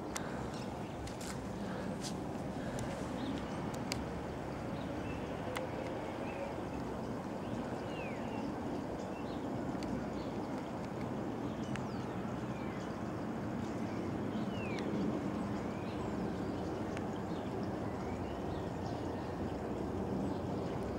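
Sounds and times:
steady low rumble: 0:00.0 - 0:10.5
small birds chirping: 0:00.0 - 0:19.1
faint clicks: 0:00.1 - 0:01.4, 0:02.1 - 0:04.1, 0:09.7 - 0:11.9.

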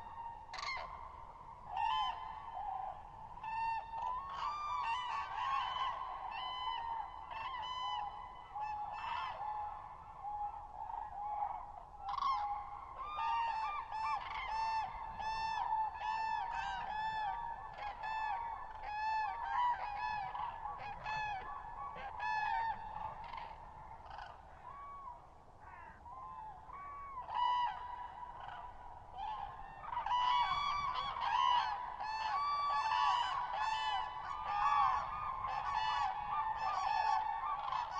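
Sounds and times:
cranes trumpeting calls: 0:24.0 - 0:37.9.

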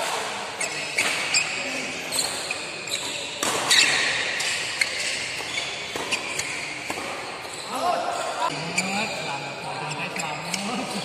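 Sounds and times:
sneakers squeaking on floor: 0:00.4 - 0:11.0
racket striking shuttlecock: 0:03.1 - 0:07.6.

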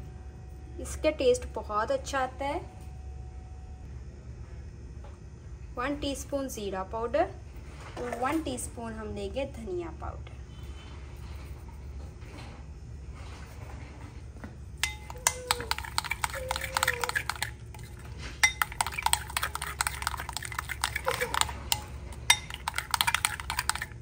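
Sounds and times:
spoon stirring in glass bowl: 0:14.8 - 0:24.0.

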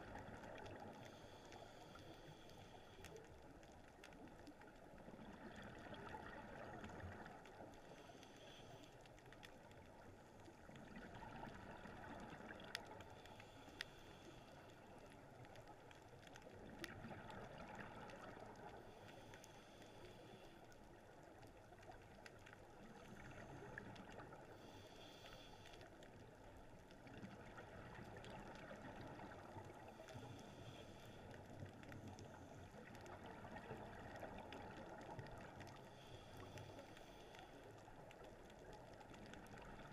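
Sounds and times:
diver regulator breathing: 0:07.8 - 0:09.0, 0:13.1 - 0:15.0, 0:18.8 - 0:20.7, 0:24.5 - 0:26.0, 0:29.9 - 0:31.6, 0:35.8 - 0:37.9.

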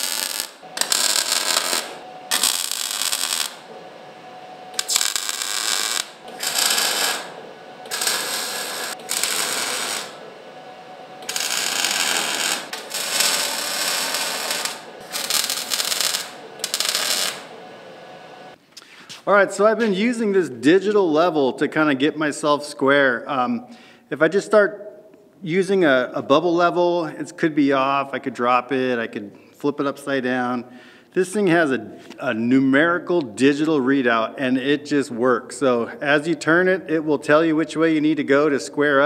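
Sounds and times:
welding arc crackling: 0:00.0 - 0:03.7, 0:04.7 - 0:10.3, 0:11.2 - 0:17.6.

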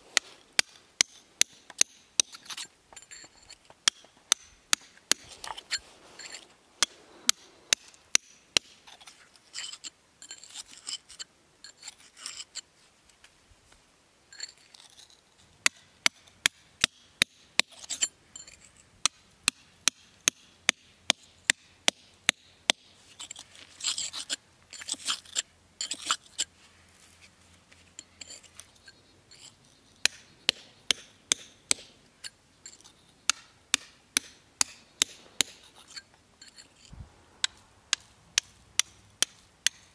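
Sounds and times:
chisel scraping on stone: 0:00.6 - 0:12.6, 0:14.3 - 0:15.8, 0:17.6 - 0:18.8, 0:23.1 - 0:26.5, 0:28.0 - 0:39.9
hammer striking chisel: 0:03.8 - 0:05.3, 0:30.0 - 0:31.9, 0:33.3 - 0:35.7, 0:37.4 - 0:39.9.

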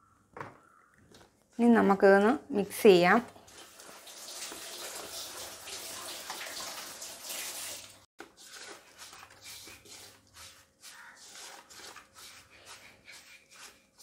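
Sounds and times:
hand rubbing powder in steel bowl: 0:08.2 - 0:14.0.

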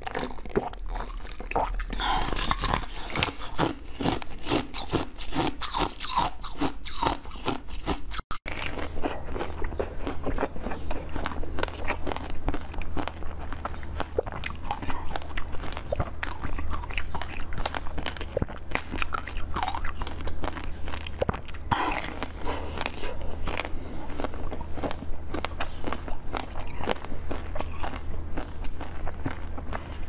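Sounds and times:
person biting and chewing: 0:00.0 - 0:30.0
steady low hum: 0:08.5 - 0:30.0.

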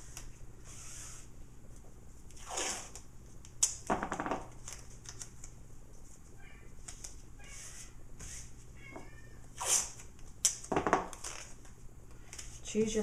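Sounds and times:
tape ripping off roll: 0:02.3 - 0:05.2, 0:09.6 - 0:11.7.

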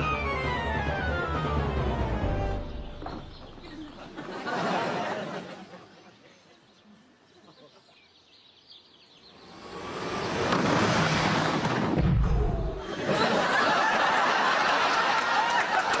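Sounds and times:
audience laughter: 0:03.6 - 0:06.8, 0:12.8 - 0:16.0
deep explosion boom: 0:11.9 - 0:13.0.

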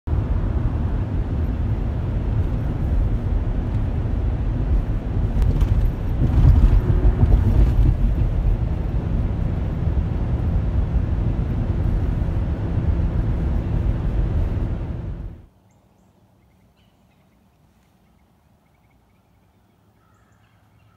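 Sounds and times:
vehicle engine rumble from inside: 0:00.1 - 0:15.5.

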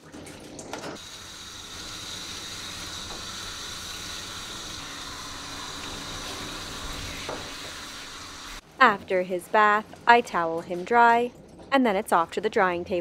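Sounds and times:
water hissing from sprayer: 0:01.0 - 0:08.6.

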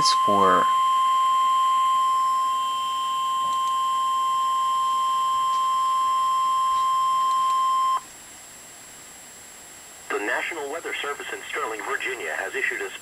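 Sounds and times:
steady high alarm tone: 0:00.0 - 0:08.0.

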